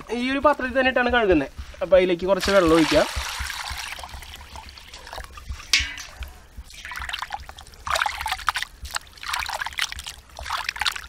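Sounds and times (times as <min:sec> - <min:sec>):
water splashing: 0:01.5 - 0:11.0
water pouring into steel bowl: 0:02.4 - 0:11.0.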